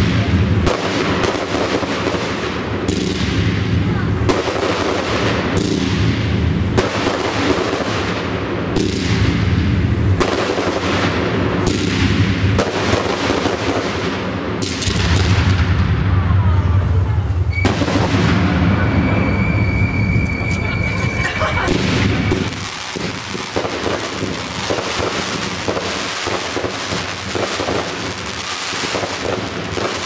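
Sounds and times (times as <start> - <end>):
firework shells bursting: 17.5 - 30.0.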